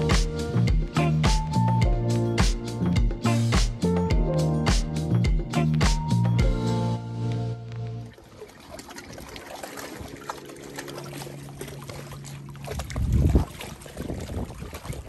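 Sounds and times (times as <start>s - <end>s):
background music: 0.0s - 8.1s
water lapping against metal canoe: 7.7s - 15.0s.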